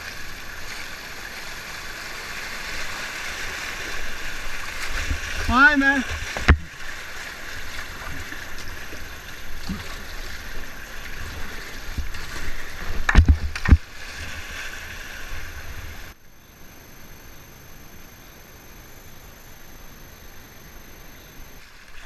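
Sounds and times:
paddle strokes: 0.0s - 16.2s
boat knocking on stones: 6.1s - 6.7s, 12.9s - 13.9s.

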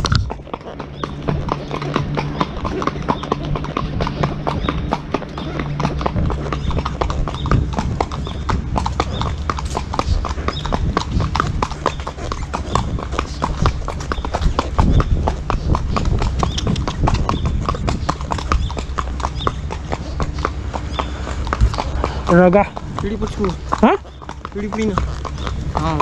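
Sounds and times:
horse hooves clip-clopping on road: 0.0s - 26.0s
steady low rumble: 0.0s - 26.0s.

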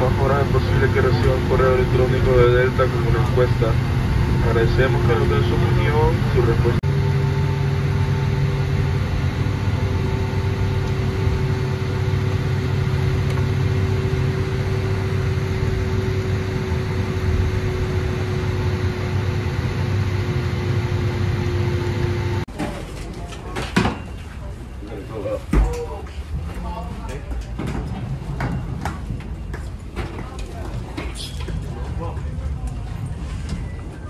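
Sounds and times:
airplane cabin drone with whine: 0.0s - 22.5s, 23.2s - 34.0s.

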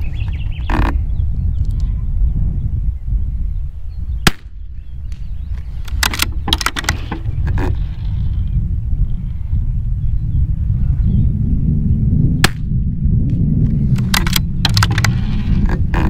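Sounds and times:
wind buffeting microphone: 0.0s - 16.0s
rifle shot: 4.2s - 4.6s
faint clicks and cracks: 5.1s - 8.2s, 13.9s - 16.0s.

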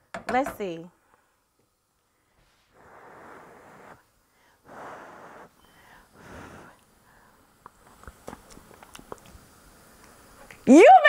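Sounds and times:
person blowing on food: 2.6s - 6.8s.

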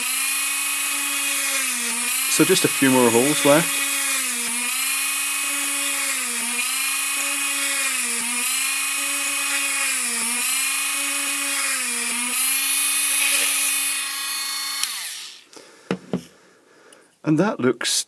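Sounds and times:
mini drill high whine: 0.0s - 15.5s.

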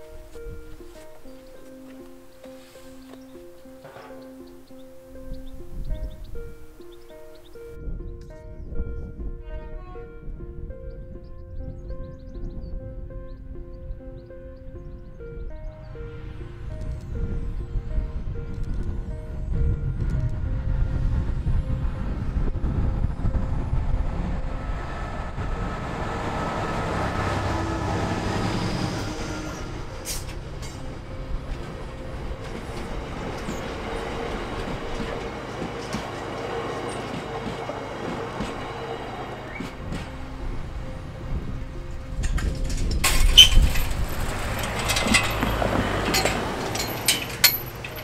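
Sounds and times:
diesel locomotive passing: 0.0s - 48.0s
low train rumble: 0.0s - 48.0s
car driving over level crossing: 42.3s - 48.0s
sharp clinks: 43.1s - 48.0s.

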